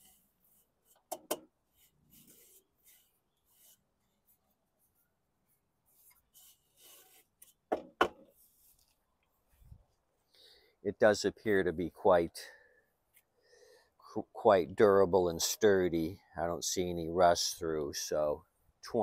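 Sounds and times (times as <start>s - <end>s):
hand rubbing on steel deck: 0.0s - 8.9s
sharp knocks on metal: 7.7s - 8.2s.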